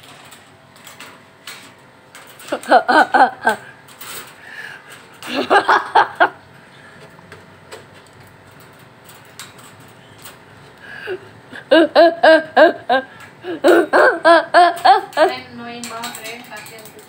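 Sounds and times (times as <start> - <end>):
person laughing: 2.4 - 3.7, 5.2 - 6.4, 11.0 - 15.4.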